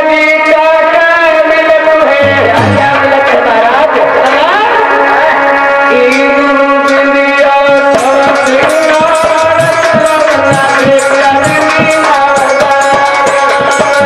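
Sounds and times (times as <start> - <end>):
hand drum strokes: 2.2 - 3.1
sustained folk melody: 2.2 - 4.2.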